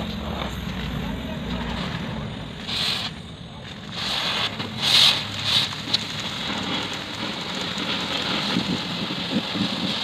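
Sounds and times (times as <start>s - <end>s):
torch puffs: 3.8s - 10.0s.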